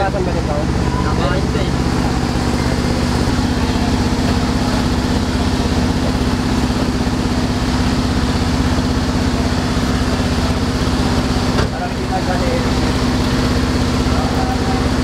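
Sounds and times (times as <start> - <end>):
engine idling: 0.0 - 15.0.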